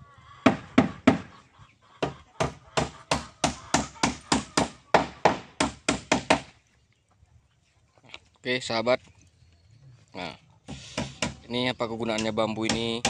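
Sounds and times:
hammer striking wood: 0.4s - 1.3s, 2.0s - 6.6s, 10.7s - 11.5s, 12.1s - 13.0s.

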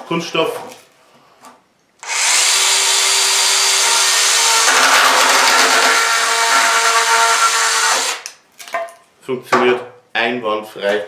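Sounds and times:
mini chainsaw cutting plastic pipe: 2.0s - 8.4s.

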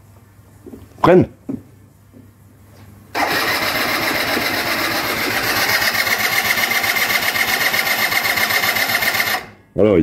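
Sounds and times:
starter motor cranking engine: 3.2s - 9.6s.

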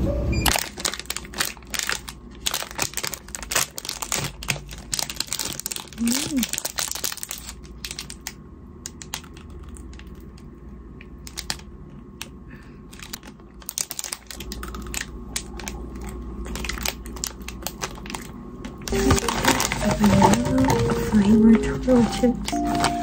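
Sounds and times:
low room hum: 0.0s - 23.0s
ice cream wrapper crinkling: 0.5s - 23.0s
background music: 18.9s - 23.0s.

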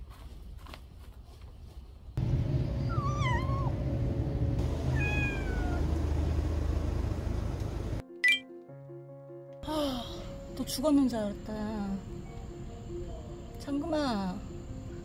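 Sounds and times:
steady low rumble: 2.2s - 8.0s
cat meowing: 2.8s - 3.7s, 4.9s - 5.8s.

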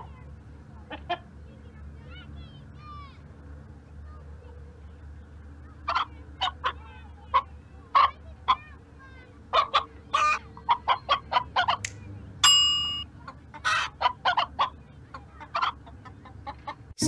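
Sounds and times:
hen clucking: 9.5s - 11.9s, 13.2s - 16.9s
ringing ding: 12.4s - 13.0s.

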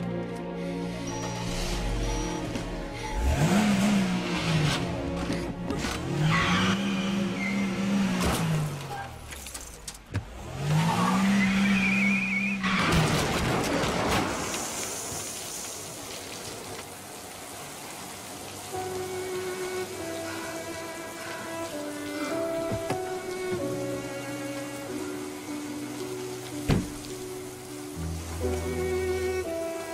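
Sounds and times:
tyre squeal: 1.0s - 3.4s
car engine revving: 1.5s - 9.0s
spraying water hiss: 14.3s - 29.9s.

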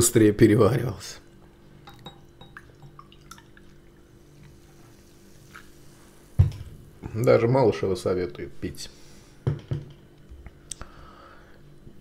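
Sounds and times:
cola pouring and fizzing: 1.9s - 6.7s.

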